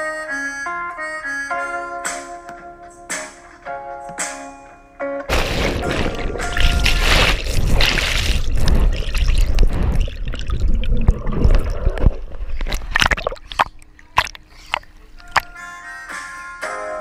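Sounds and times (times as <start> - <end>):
muffled underwater rushing: 5.3 - 15.5
water splashing: 5.3 - 15.6.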